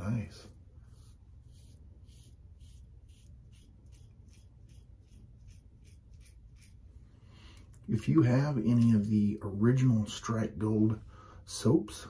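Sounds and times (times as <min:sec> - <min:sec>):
razor scraping stubble: 0:00.8 - 0:06.9.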